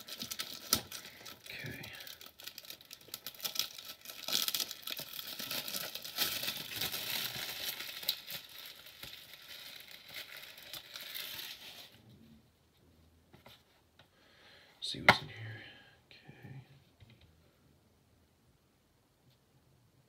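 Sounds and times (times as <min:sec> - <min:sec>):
plastic wrap crinkling and tearing: 0:00.0 - 0:12.0.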